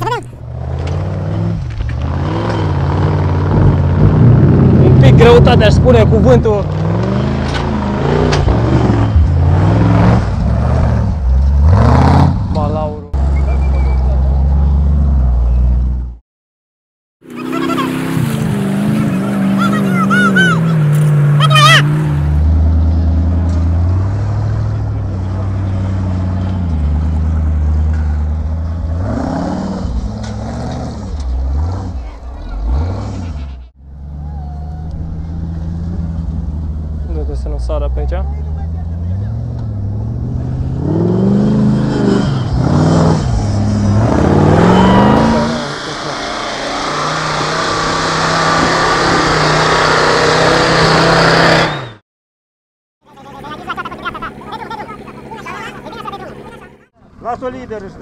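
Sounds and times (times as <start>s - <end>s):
engine running at high revs: 0.0s - 12.7s, 38.6s - 52.0s
buggy engine running under load: 0.0s - 16.2s, 17.2s - 52.0s, 53.0s - 58.0s.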